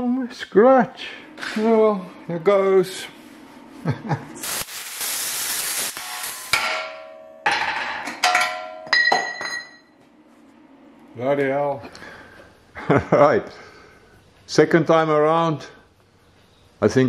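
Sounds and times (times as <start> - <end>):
loud hissing of steel cutting: 4.4 - 6.6
hammer striking ringing steel: 5.9 - 9.9.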